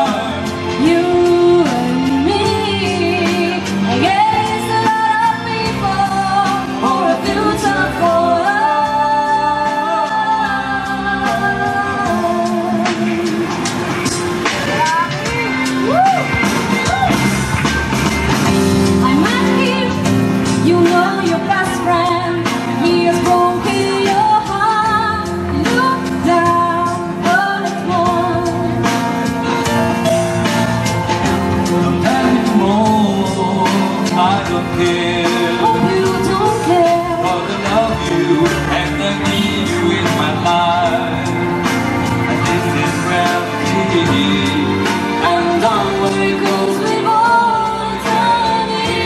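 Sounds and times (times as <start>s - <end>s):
woman singing into microphone: 0.0s - 13.7s, 14.5s - 16.3s, 18.9s - 29.1s, 31.8s - 39.1s, 43.2s - 49.0s
instrumental accompaniment: 0.0s - 49.0s.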